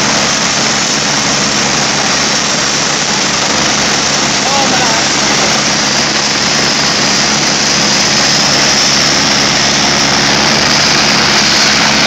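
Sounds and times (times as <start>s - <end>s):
helicopter turbine and rotor: 0.0s - 12.0s
wind from rotor downwash: 0.0s - 12.0s.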